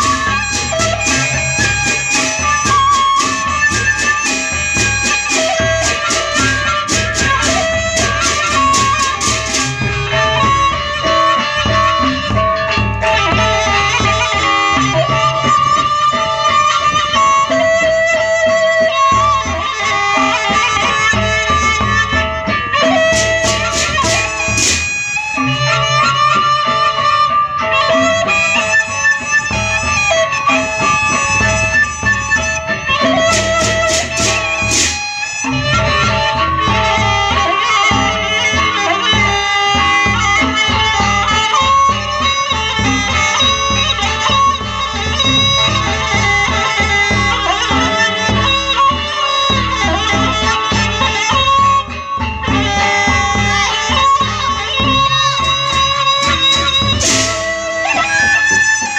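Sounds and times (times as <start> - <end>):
large drums beating: 0.0 - 10.8, 22.9 - 25.3, 33.1 - 38.2, 54.3 - 57.8
cymbals: 0.0 - 14.2, 22.7 - 25.9, 28.6 - 37.0, 54.8 - 58.0
small gongs: 0.0 - 15.5, 21.1 - 26.0, 28.6 - 37.0
bamboo flute melody: 0.0 - 58.9.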